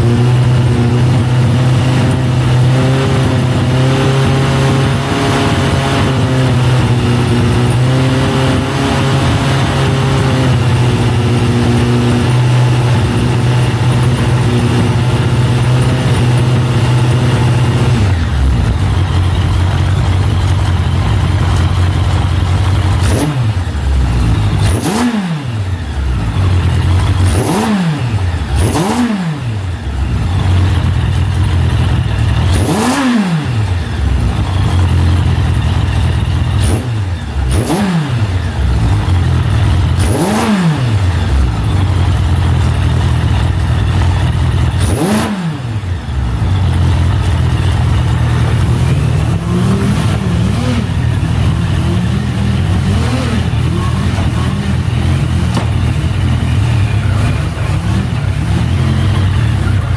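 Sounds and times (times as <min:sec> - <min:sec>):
engine throttle blips: 0:00.0 - 0:59.9
motorcycle engine idling: 0:12.8 - 0:24.7, 0:25.6 - 0:27.6, 0:28.2 - 0:32.8, 0:33.6 - 0:37.5, 0:38.2 - 0:40.0, 0:41.0 - 0:59.9.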